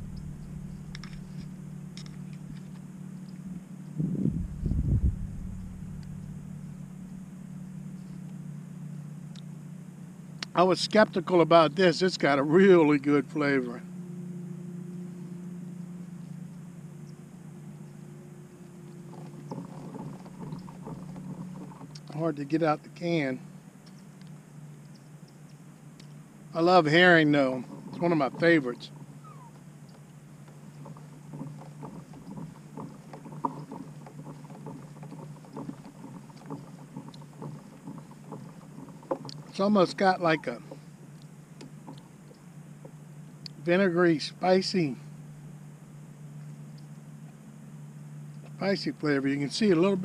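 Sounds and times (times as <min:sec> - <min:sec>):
low hum: 0:00.0 - 0:50.0
water lapping against boat hull: 0:18.6 - 0:23.1, 0:26.0 - 0:43.1.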